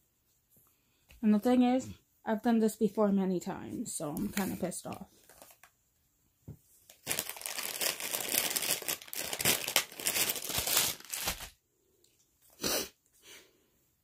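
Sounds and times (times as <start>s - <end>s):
crinkly material rustling: 4.2s - 5.8s, 6.6s - 11.6s.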